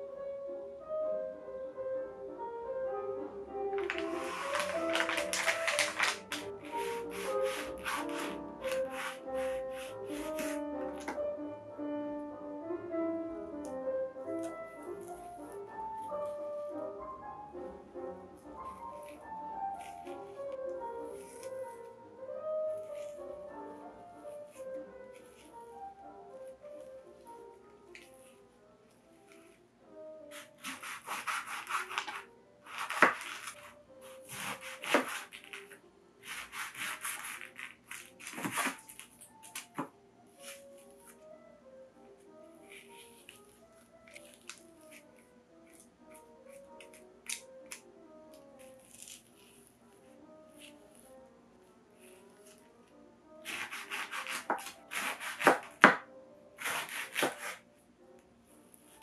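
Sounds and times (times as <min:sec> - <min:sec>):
soft music: 0:00.0 - 0:59.0
knife sawing through fruit rind: 0:06.6 - 0:10.6, 0:30.3 - 0:35.5, 0:36.2 - 0:38.8, 0:53.4 - 0:55.7, 0:56.6 - 0:57.6.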